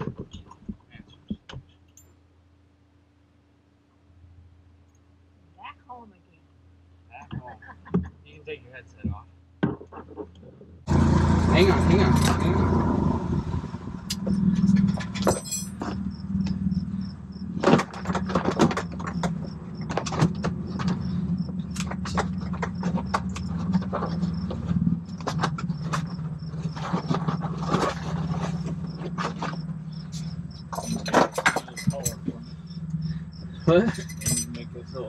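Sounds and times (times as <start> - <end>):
steady low hum: 0.0 - 35.0
gear clicking and rustling: 14.1 - 35.0.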